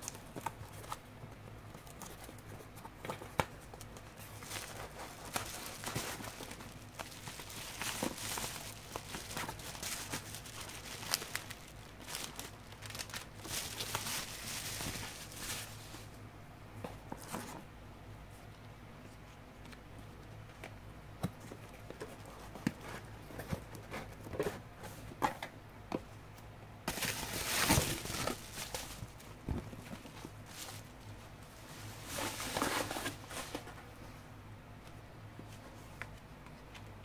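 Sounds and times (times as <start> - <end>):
packaging rustling: 1.8 - 16.1, 26.9 - 31.0, 31.6 - 33.8.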